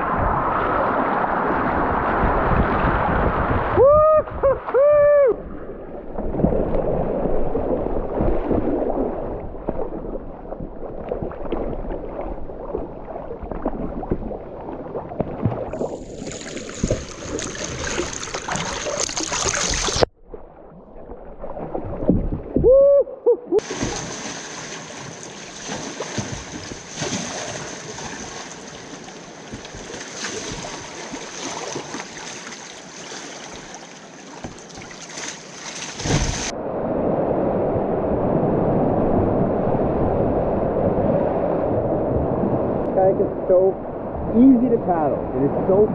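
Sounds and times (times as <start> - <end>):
river water splashing: 0.0 - 22.9, 23.6 - 36.6
person shouting: 3.8 - 5.4, 22.6 - 23.6
paddle strokes: 6.1 - 20.1, 23.6 - 36.5.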